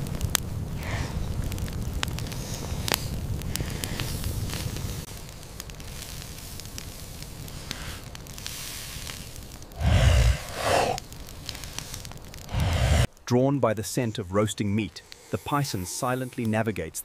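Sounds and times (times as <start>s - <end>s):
campfire crackling and popping: 0.0s - 17.0s
low rumble: 9.8s - 11.0s, 12.5s - 13.1s
low whoosh: 9.8s - 11.0s, 12.5s - 13.1s.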